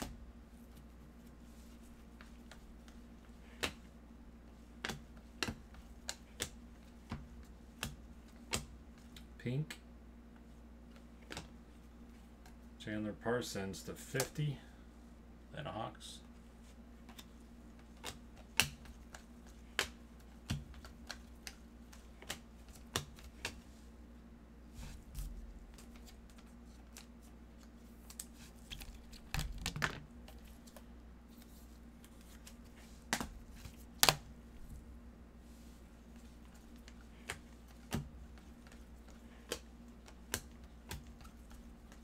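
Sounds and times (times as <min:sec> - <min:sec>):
cards clicking as flipped: 0:02.4 - 0:03.8, 0:17.1 - 0:23.6, 0:36.5 - 0:42.0
card handled in plastic sleeve: 0:24.8 - 0:34.0.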